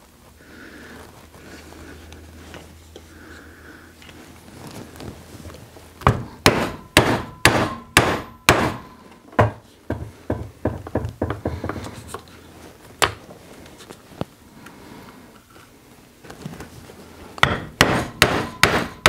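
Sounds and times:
mallet striking leather punch: 6.0s - 10.4s, 17.4s - 19.0s.

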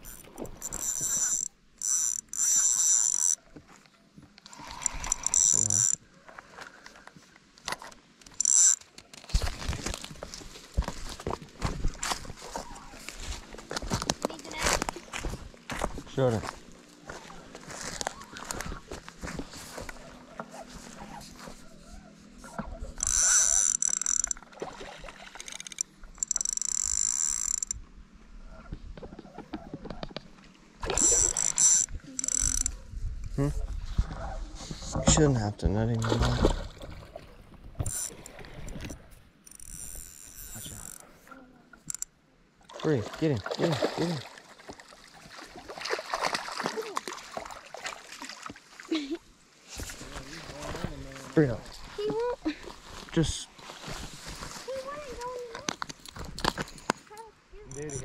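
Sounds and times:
fishing reel drag buzzing: 0.0s - 3.4s, 4.4s - 6.0s, 8.2s - 8.9s, 22.9s - 24.5s, 25.4s - 27.8s, 30.8s - 32.8s, 37.8s - 38.3s, 39.4s - 41.1s, 41.8s - 42.1s, 57.7s - 58.0s.

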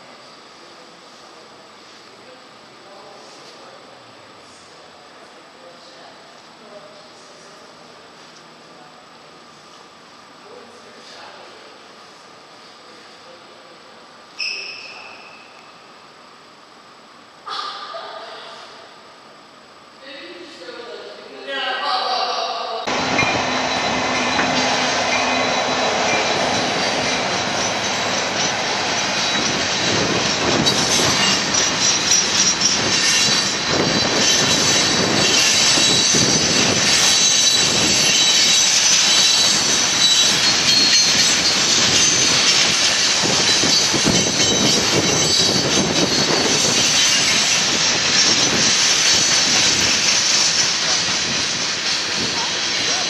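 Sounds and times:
high wheel squeal: 14.4s - 15.7s, 22.9s - 53.0s
freight train wheels rumbling: 22.8s - 53.0s
wheels clacking over rail joints: 22.9s - 53.0s.

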